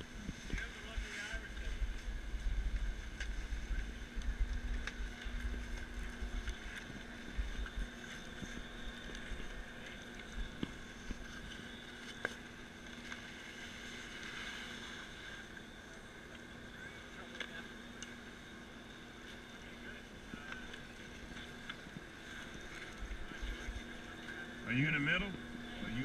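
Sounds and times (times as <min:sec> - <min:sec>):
wind rumbling on microphone: 0:00.0 - 0:11.9
chairlift machinery humming: 0:00.0 - 0:26.0
skis and poles scraping snow: 0:00.2 - 0:04.0.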